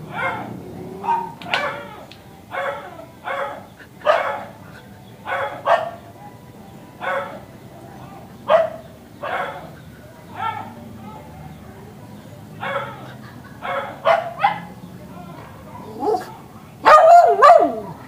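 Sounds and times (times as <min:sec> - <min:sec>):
small dog barking: 0:00.1 - 0:04.6, 0:05.3 - 0:06.4, 0:07.0 - 0:07.4, 0:08.5 - 0:09.7, 0:10.4 - 0:10.7, 0:12.6 - 0:14.7, 0:15.5 - 0:17.9.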